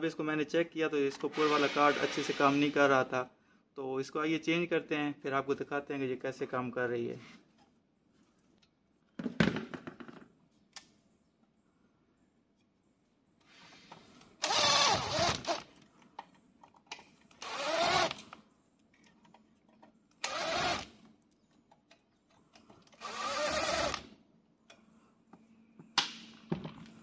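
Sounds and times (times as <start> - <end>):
electric drill-driver motor: 14.4 - 15.6, 17.4 - 18.2, 20.2 - 20.9, 23.0 - 24.1.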